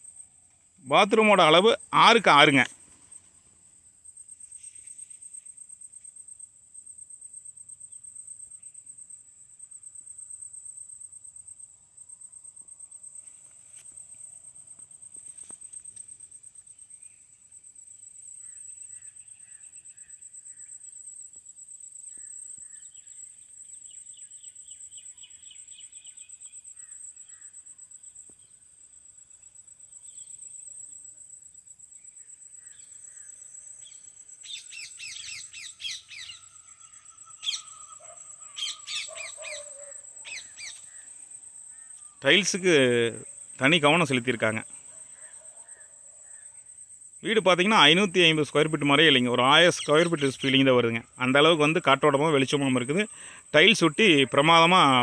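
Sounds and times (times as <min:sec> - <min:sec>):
insect trilling: 0:00.0 - 0:55.0
faint bird chirps: 0:12.0 - 0:53.5.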